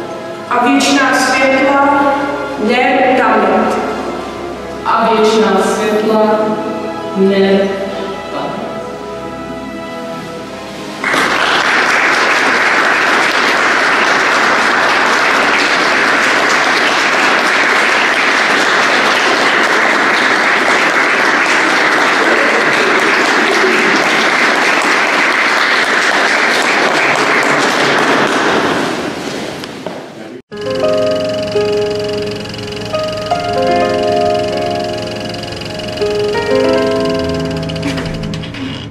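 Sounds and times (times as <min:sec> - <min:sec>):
audience applause: 0:11.0 - 0:29.2, 0:30.6 - 0:38.8.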